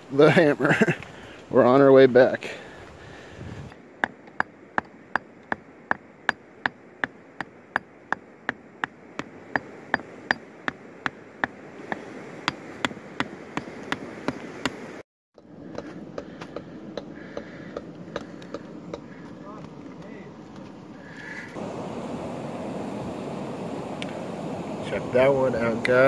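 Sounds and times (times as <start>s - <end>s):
rock pick striking stone: 4.0s - 14.8s, 15.7s - 19.1s.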